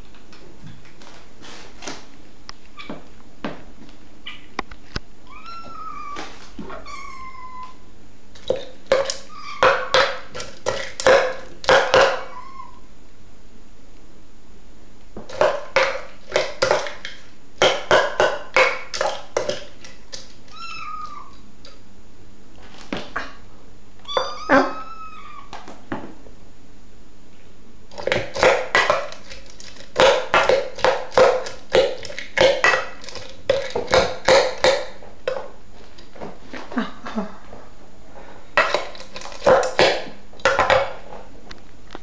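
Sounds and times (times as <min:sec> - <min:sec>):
kittens mewing: 0:05.2 - 0:07.8, 0:09.1 - 0:10.0, 0:12.0 - 0:12.9, 0:20.4 - 0:21.4, 0:24.0 - 0:25.6.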